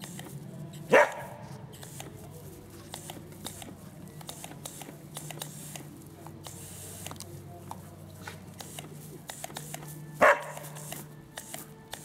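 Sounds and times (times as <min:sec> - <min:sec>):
dog barking: 0:00.9 - 0:01.4, 0:10.2 - 0:10.8.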